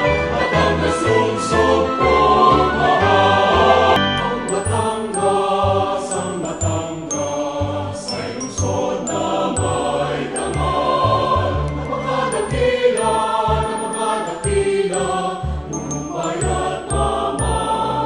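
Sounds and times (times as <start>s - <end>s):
choir-like singing: 0.0s - 18.0s
high chiming tones: 4.0s - 18.0s.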